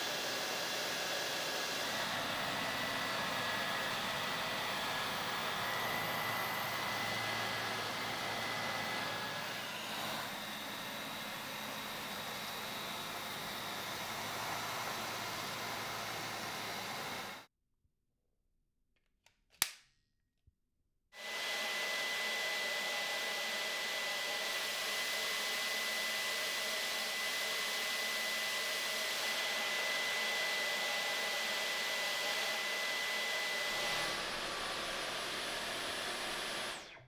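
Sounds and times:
cordless vacuum running: 0:00.0 - 0:17.5, 0:21.2 - 0:37.0
sharp click: 0:19.2 - 0:19.9.

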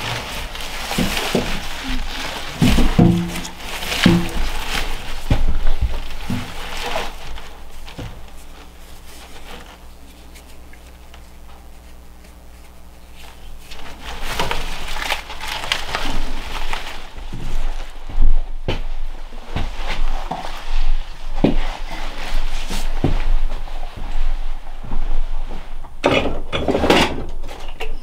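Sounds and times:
dry onion skins rustling: 0:00.0 - 0:18.6
faint steady hum: 0:00.0 - 0:28.0.

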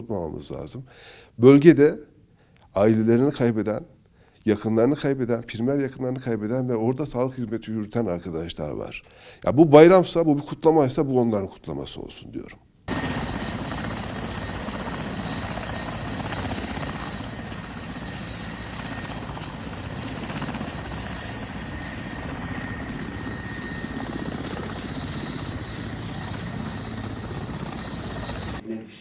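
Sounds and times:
helicopter rotor and engine noise: 0:12.9 - 0:28.6.

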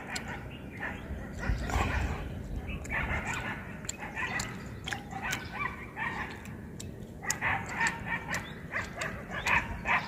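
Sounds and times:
sharp clicks: 0:06.2 - 0:10.0.

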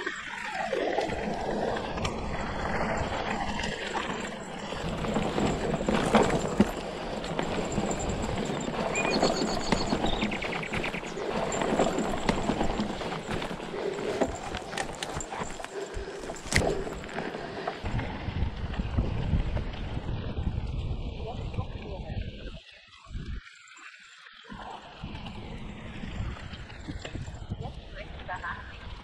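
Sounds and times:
bike rattling and knocking: 0:01.1 - 0:18.0
tyres crunching on dirt: 0:03.7 - 0:17.9.

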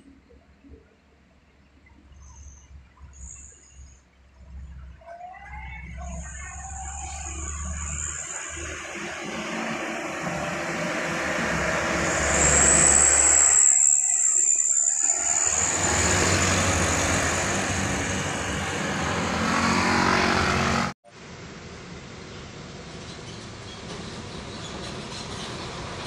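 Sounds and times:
road noise: 0:01.4 - 0:26.0
high whine: 0:06.0 - 0:20.9
truck diesel engine passing: 0:06.1 - 0:14.2, 0:15.0 - 0:26.0.

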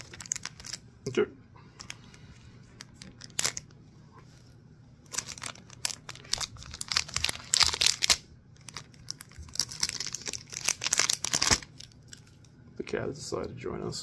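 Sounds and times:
plastic wrapping crinkling and tearing: 0:00.0 - 0:00.8, 0:02.8 - 0:03.8, 0:05.0 - 0:12.5.

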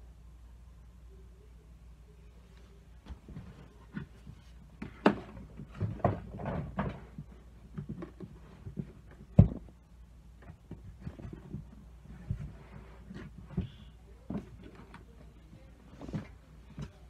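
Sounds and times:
knocks bumps and clatter: 0:04.8 - 0:09.8.

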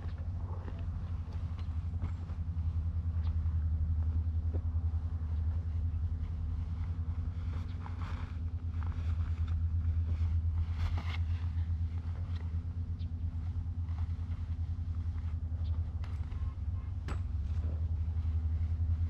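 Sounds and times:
fabric rustling: 0:05.5 - 0:12.7.

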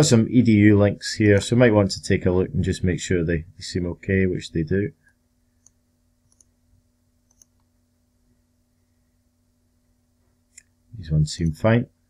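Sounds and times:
low steady hum: 0:00.0 - 0:12.0
computer mouse clicks: 0:05.6 - 0:06.5, 0:07.3 - 0:07.7.

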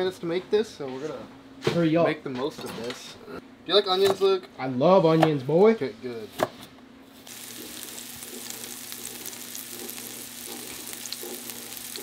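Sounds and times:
onions sizzling in oil: 0:07.2 - 0:12.0.

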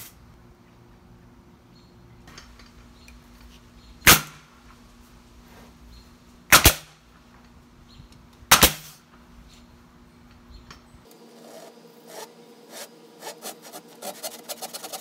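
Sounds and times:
nail gun firing: 0:04.0 - 0:04.4, 0:06.5 - 0:06.9, 0:08.5 - 0:09.0.

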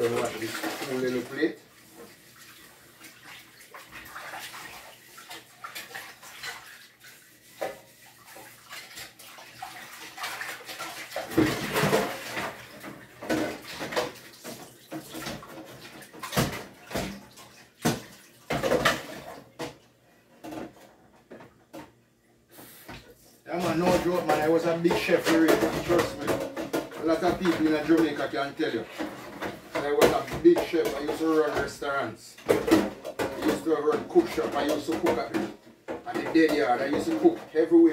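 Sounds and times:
tap water running: 0:00.0 - 0:19.8, 0:22.6 - 0:37.9
dishes clattering: 0:10.8 - 0:19.8, 0:23.6 - 0:31.8, 0:32.4 - 0:37.7.

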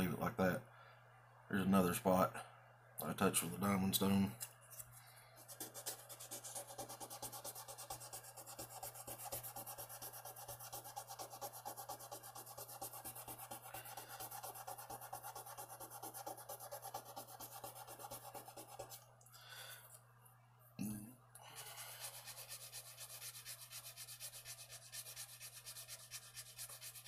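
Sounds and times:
sandpaper rubbing on metal: 0:05.6 - 0:18.9, 0:21.8 - 0:27.0.

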